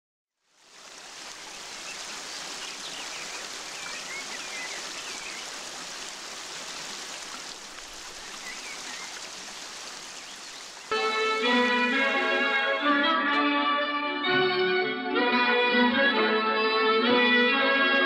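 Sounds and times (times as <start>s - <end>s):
waterfall splashing into stream: 0.4s - 12.5s.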